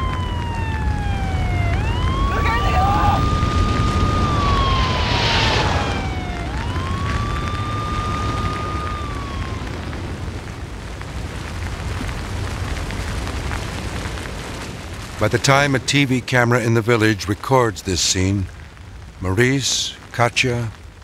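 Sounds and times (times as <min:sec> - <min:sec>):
siren wailing: 0:00.0 - 0:10.7
low rumble: 0:00.4 - 0:10.9.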